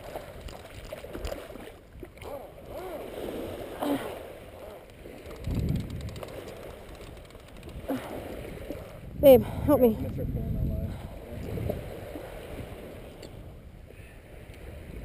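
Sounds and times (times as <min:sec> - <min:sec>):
small waves lapping at beach: 0:00.0 - 0:15.0.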